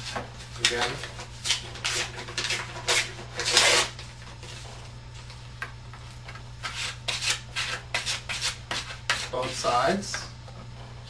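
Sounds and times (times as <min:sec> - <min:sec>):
hands rubbing paper on cardboard: 0:06.6 - 0:09.7.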